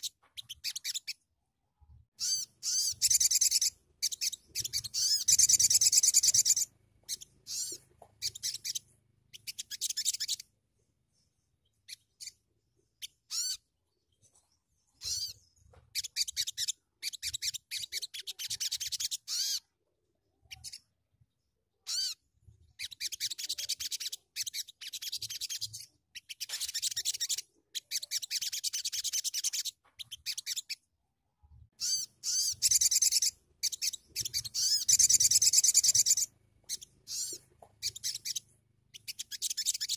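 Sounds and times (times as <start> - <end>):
bird chittering trills: 2.2 - 10.5, 13.0 - 19.7, 31.8 - 39.9.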